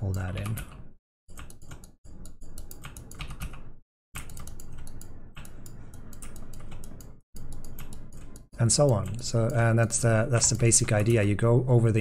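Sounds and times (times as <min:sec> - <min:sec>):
computer keyboard clicking: 0:02.6 - 0:03.6, 0:04.2 - 0:09.7.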